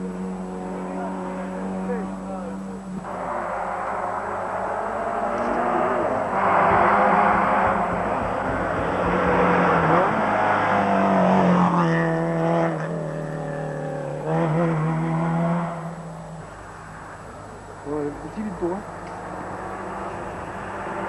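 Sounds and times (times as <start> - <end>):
rally car engine revving past: 0.0 - 16.4.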